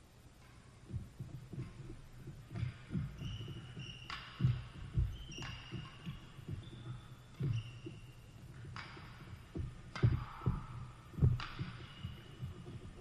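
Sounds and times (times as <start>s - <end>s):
court shoes squeaking: 0.4s - 13.0s
racket striking shuttlecock: 2.5s - 6.2s, 8.5s - 12.1s.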